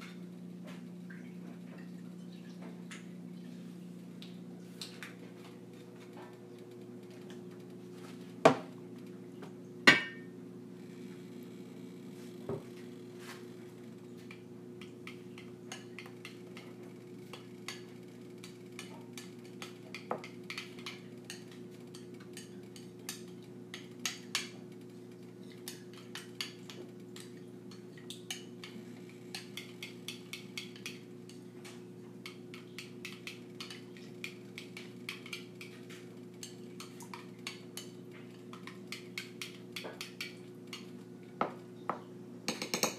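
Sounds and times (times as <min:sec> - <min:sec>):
steady low hum: 0:00.0 - 0:42.9
dishes knocking: 0:09.9 - 0:10.3, 0:41.4 - 0:42.9.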